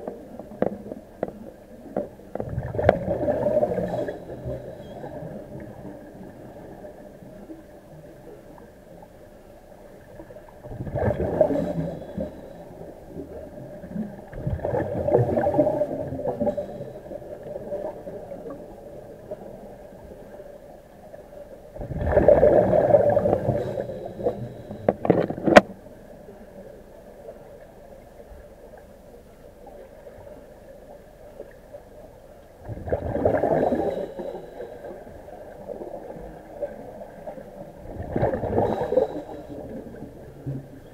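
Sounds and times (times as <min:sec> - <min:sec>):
bubbles gurgling underwater: 0:00.0 - 0:07.2, 0:10.6 - 0:20.3, 0:21.7 - 0:25.6, 0:32.6 - 0:40.9
steady underwater hum: 0:00.0 - 0:40.9.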